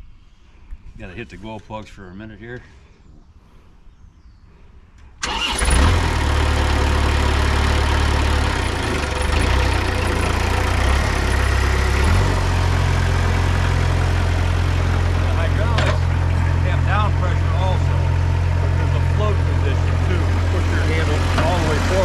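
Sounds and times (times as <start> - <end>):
diesel engine starting and running: 5.1 - 22.0.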